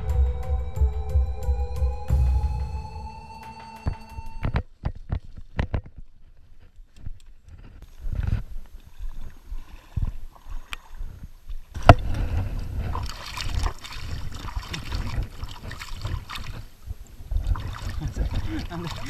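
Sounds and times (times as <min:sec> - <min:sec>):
water splashing around legs: 0:08.0 - 0:19.0.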